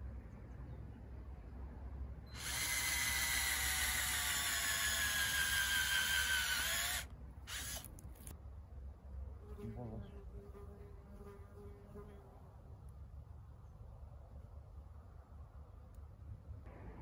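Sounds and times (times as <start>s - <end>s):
electric power drill whining: 2.4s - 8.3s.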